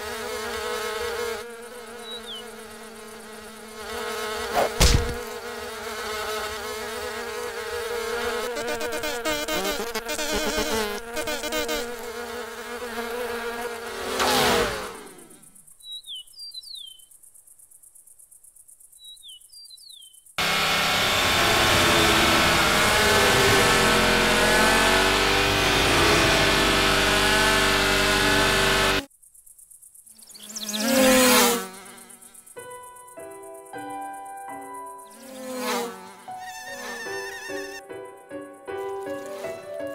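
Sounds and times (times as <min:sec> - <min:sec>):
cartoon wings buzzing: 0:00.0 - 0:15.6, 0:20.4 - 0:29.1, 0:35.2 - 0:37.8.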